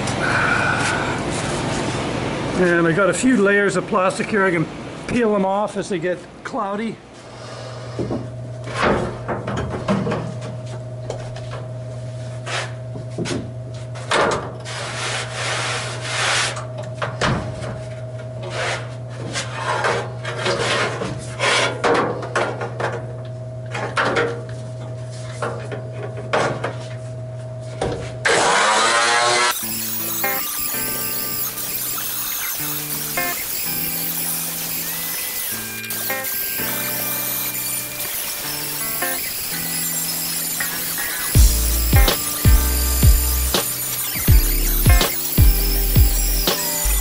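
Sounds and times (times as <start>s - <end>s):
angle grinder whining: 28.2s - 47.0s
grinder disc scraping steel: 28.3s - 47.0s
loud music: 40.8s - 47.0s.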